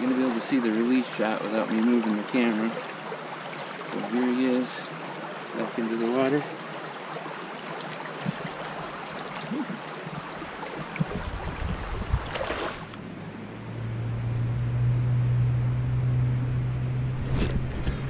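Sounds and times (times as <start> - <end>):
creek water running: 0.0 - 13.3
low hum: 12.8 - 18.0.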